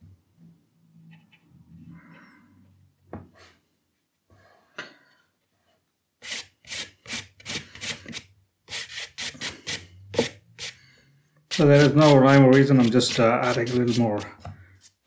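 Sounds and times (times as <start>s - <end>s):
paintbrush scrubbing paper: 11.5s - 15.0s.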